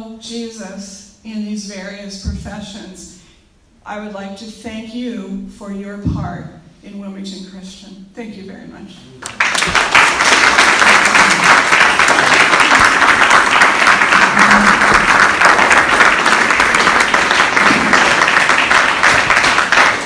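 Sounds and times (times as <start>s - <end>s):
audience applauding: 9.2s - 20.0s.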